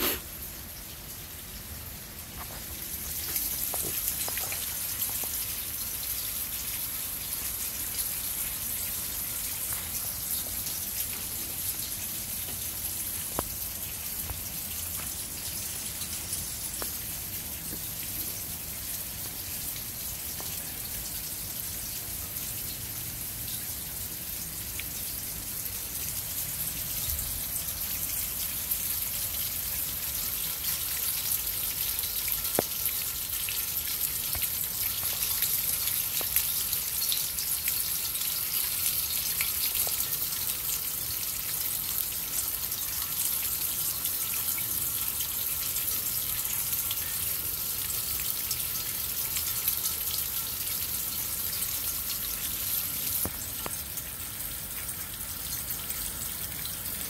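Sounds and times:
steady rain: 0.0 - 57.0
faint drip ticks: 9.6 - 21.1, 32.0 - 33.2, 33.8 - 40.4.

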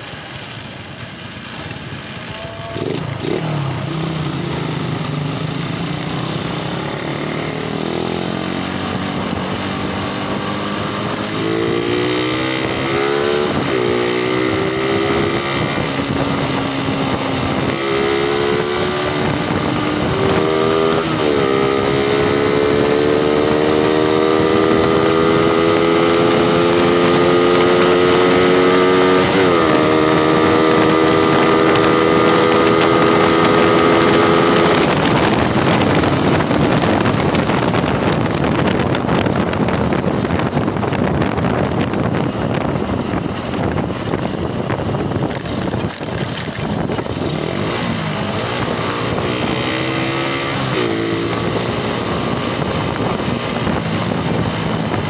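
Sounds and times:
motorcycle engine accelerating: 0.0 - 55.0
wind rushing over microphone: 1.8 - 55.0.

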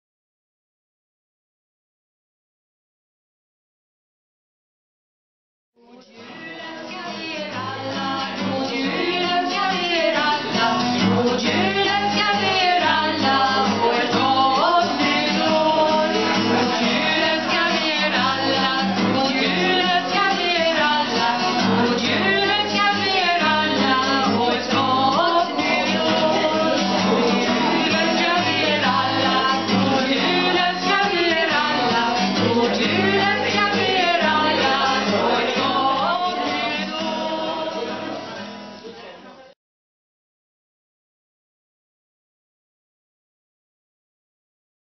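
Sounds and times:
women singing: 5.8 - 38.5
guitars strumming: 6.0 - 39.1.

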